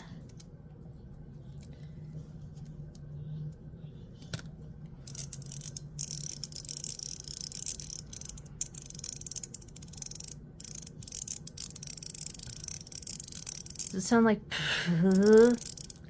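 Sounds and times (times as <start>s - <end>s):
metal fidget toy clicking: 5.0s - 14.2s, 15.0s - 16.0s.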